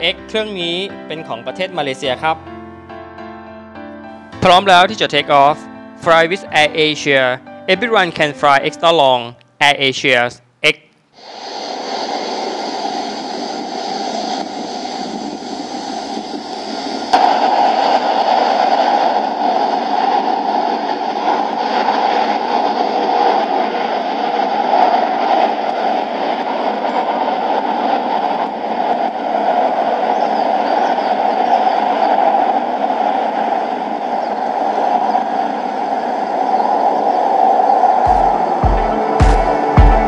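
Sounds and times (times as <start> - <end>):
jet engines running: 0.0 - 2.4, 10.6 - 40.0.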